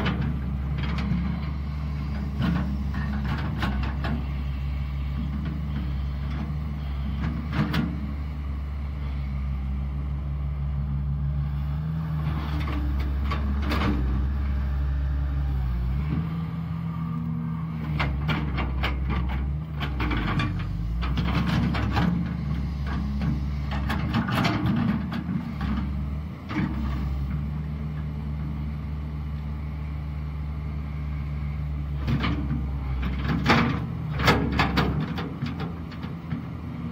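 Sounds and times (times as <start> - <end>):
excavator diesel engine under load: 0.0 - 36.9
machine clanks and knocks: 33.1 - 36.4.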